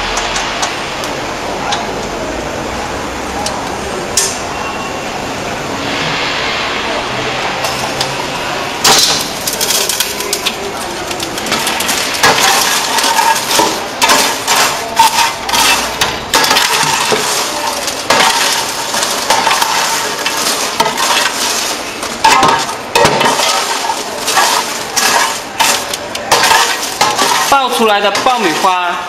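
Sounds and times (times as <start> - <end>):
popcorn rustling and crunching: 7.6 - 29.0
paper scraping on metal: 9.5 - 29.0.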